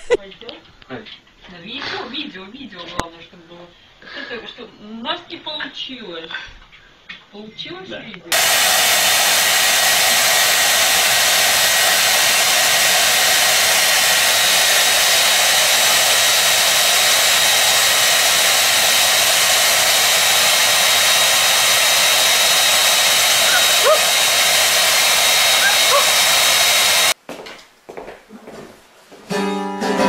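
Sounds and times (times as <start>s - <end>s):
hair dryer blowing air: 8.3s - 27.2s
high motor whine: 8.3s - 27.2s.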